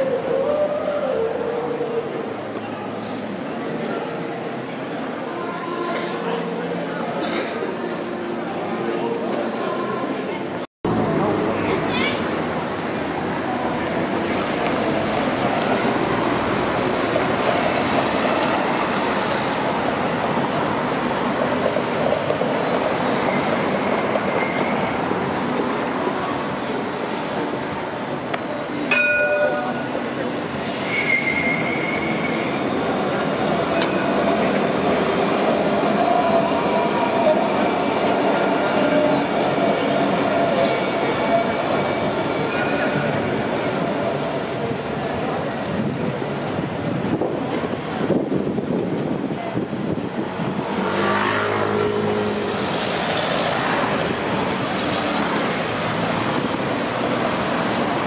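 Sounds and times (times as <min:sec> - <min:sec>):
rail vehicle rumbling past: 0:00.0 - 0:58.0
tyre and road noise: 0:06.4 - 0:58.0
high wheel squeal: 0:14.2 - 0:15.0, 0:17.8 - 0:25.2, 0:29.7 - 0:44.0.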